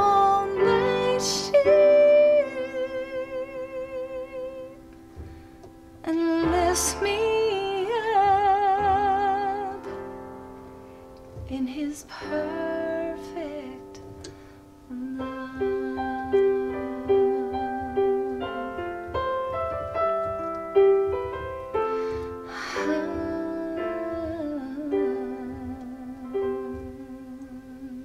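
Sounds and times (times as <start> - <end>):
woman singing wavering notes: 0.0 - 4.8, 6.0 - 10.0, 11.5 - 14.2, 14.9 - 19.0, 22.5 - 28.0
slow piano melody: 0.0 - 28.0.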